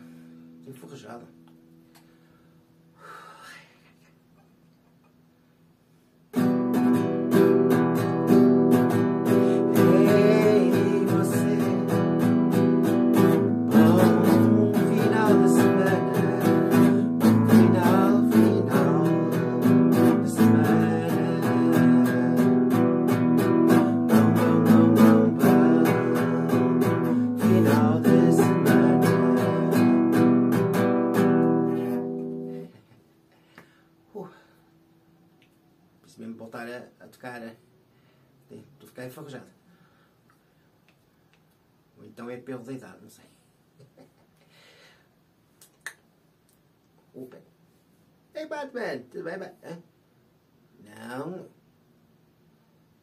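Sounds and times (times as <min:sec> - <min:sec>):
guitar strummed in quick chords: 0:06.4 - 0:32.7
man singing: 0:09.2 - 0:32.8.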